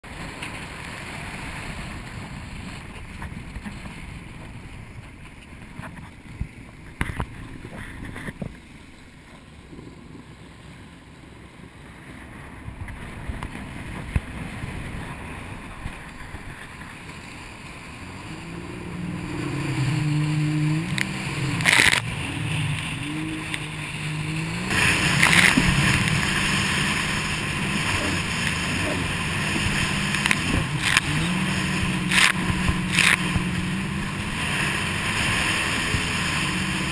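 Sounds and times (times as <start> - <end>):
jet ski engine: 0.0 - 36.9
wind and water rush: 0.0 - 36.9
loud blasts of wind and spray: 19.1 - 36.9.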